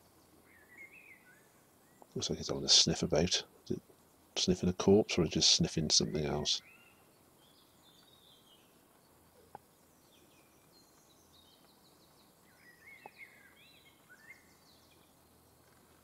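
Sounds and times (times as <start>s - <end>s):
songbird chirps and warbling: 0.0s - 16.0s.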